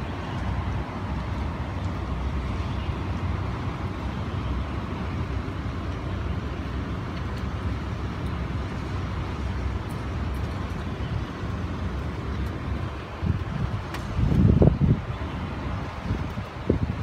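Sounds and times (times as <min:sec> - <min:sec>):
strong wind blowing: 0:10.5 - 0:17.0.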